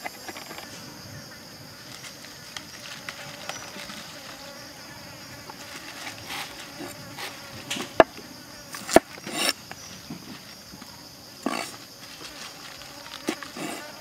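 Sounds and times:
high insect buzz: 0.0 - 14.0
crisp rustles of stalks: 1.8 - 4.8, 5.4 - 8.0, 11.7 - 14.0.

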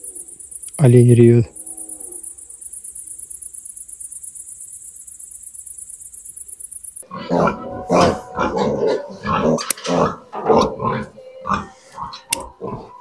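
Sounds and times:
crickets chirping: 0.0 - 7.1
loud animal call: 7.0 - 13.0.

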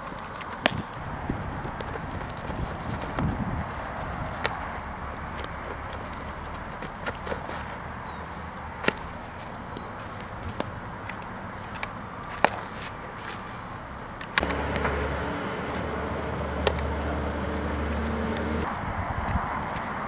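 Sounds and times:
baseballs being hit and caught: 0.2 - 13.5, 14.2 - 18.7
low hum: 13.0 - 18.9.

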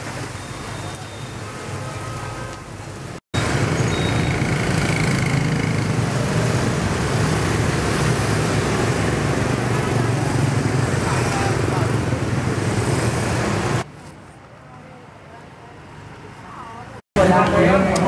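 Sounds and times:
scooters passing on wet road: 0.0 - 13.8.

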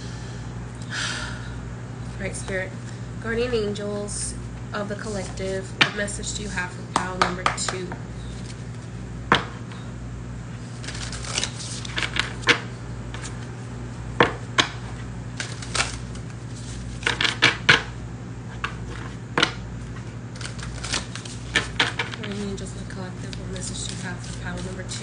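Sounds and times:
low hum: 0.0 - 25.0
cards being shuffled: 6.4 - 8.9, 10.6 - 13.5, 15.3 - 17.8, 18.5 - 25.0.

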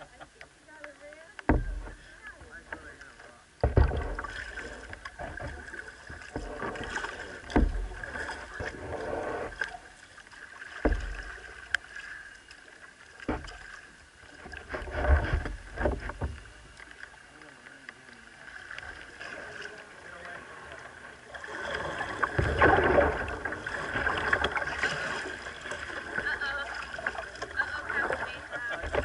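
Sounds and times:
water sloshing and splashing: 0.0 - 29.0
dull thumps of hulls knocking: 1.5 - 2.6, 3.6 - 8.8, 10.8 - 11.4.

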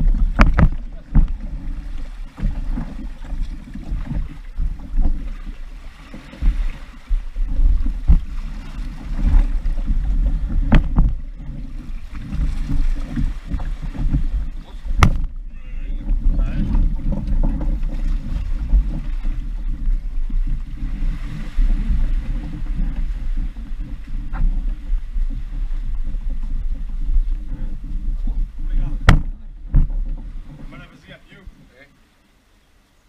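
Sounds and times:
wind buffeting microphone: 0.0 - 31.8
sharp knocks: 0.1 - 1.4, 10.6 - 11.2, 14.9 - 15.4, 28.9 - 30.7.

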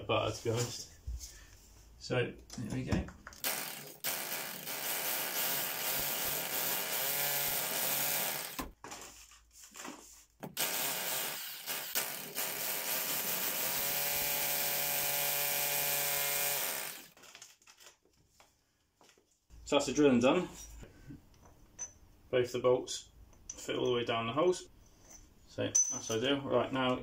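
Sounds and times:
hammer drill into concrete: 3.4 - 8.7, 10.6 - 17.2.

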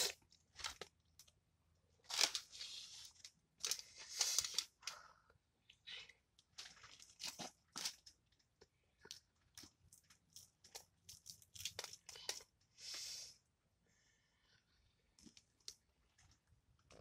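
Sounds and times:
fried fish crunching and tearing: 10.3 - 12.4.

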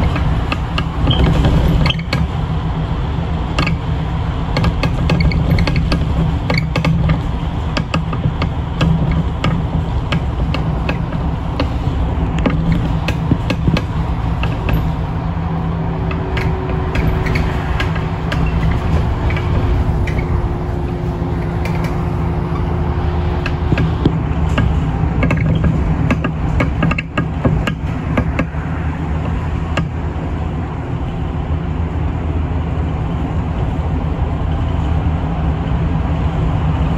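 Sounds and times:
sharp clicks and rattles: 0.0 - 2.6, 3.4 - 30.1
bus engine and tyres drone: 0.0 - 36.9
steady hum: 0.0 - 36.9.

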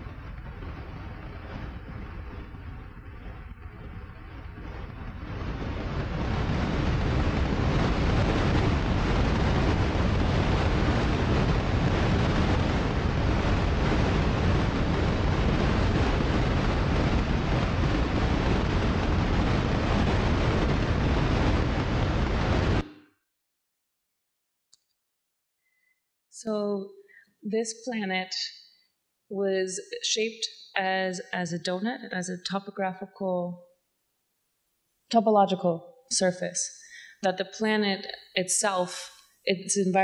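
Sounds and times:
dense rushing noise with rumble: 0.0 - 23.0.

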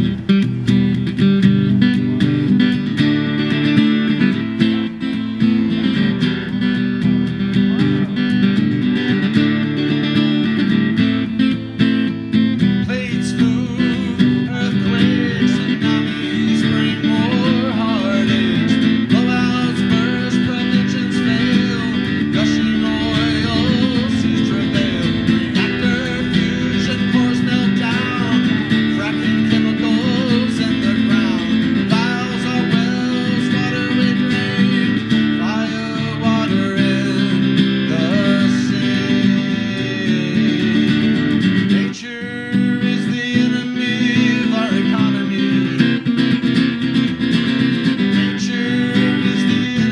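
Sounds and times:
acoustic guitar strumming: 0.0 - 49.9
man singing: 12.6 - 46.5, 48.1 - 49.9.

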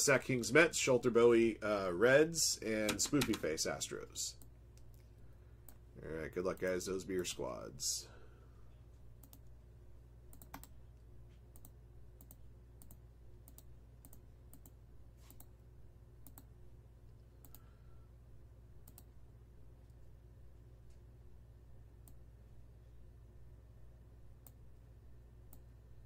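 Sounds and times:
low electrical hum: 0.0 - 26.0
computer mouse clicks: 9.2 - 9.6, 10.3 - 10.8, 11.5 - 15.5, 16.2 - 16.5, 17.4 - 17.7, 18.8 - 19.1, 25.5 - 25.7.

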